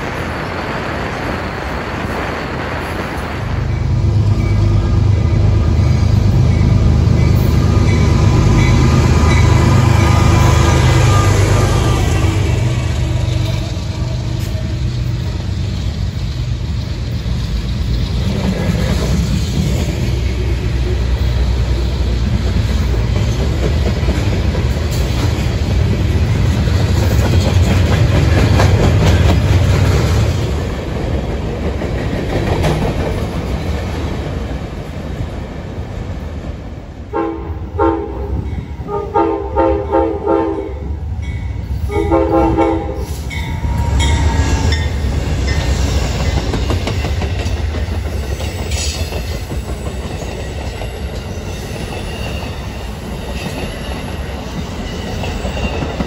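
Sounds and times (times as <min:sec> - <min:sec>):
train rolling past: 0:00.0 - 0:56.0
train horn blasts: 0:07.5 - 0:14.8, 0:37.1 - 0:41.0, 0:41.8 - 0:44.8.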